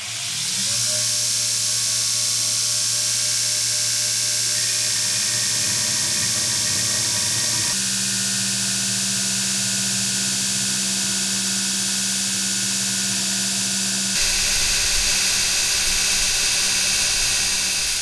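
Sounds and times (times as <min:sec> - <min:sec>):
belt grinder grinding steel: 0:00.0 - 0:07.8, 0:14.2 - 0:18.0
motor hum: 0:00.0 - 0:18.0.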